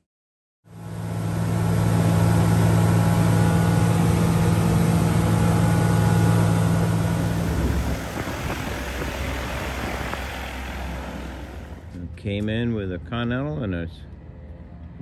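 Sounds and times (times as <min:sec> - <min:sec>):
aircraft engine droning in cabin: 0:00.7 - 0:12.1
rough engine while taxiing: 0:00.7 - 0:12.4.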